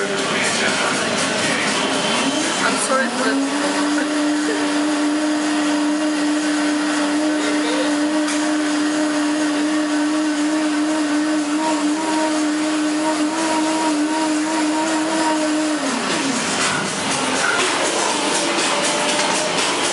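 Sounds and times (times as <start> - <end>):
busy street noise: 0.0 - 5.4, 15.8 - 19.9
motor humming: 0.0 - 19.9.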